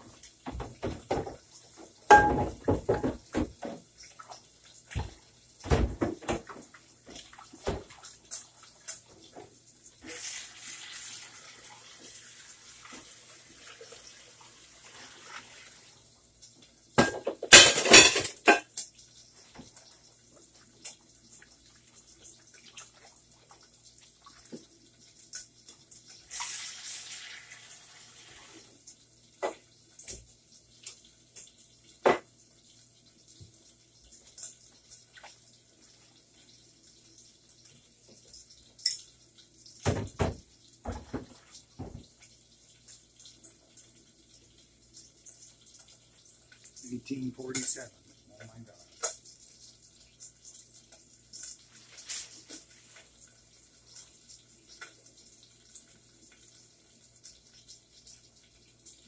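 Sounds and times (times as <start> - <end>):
kitchen tap running: 0.0 - 59.0
dishes and utensils clinking: 2.1 - 3.5, 17.0 - 18.9.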